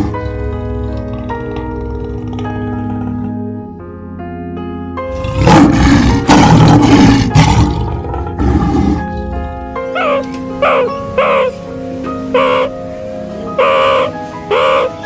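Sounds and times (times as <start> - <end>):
lion roaring: 0.0 - 3.5, 5.1 - 10.9
soft background music: 0.0 - 15.0.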